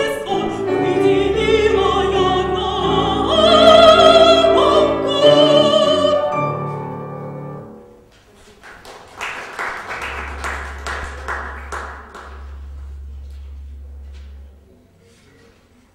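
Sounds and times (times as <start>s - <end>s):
woman singing classical: 0.0s - 6.6s
musical accompaniment: 0.0s - 8.1s, 9.5s - 15.9s
audience clapping: 8.4s - 13.0s
steady low hum: 9.8s - 15.9s.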